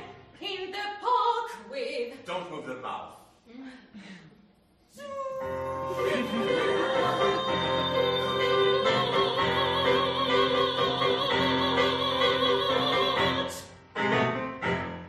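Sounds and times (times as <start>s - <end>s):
woman singing with vibrato: 5.0s - 13.7s
piano accompaniment: 5.5s - 15.0s.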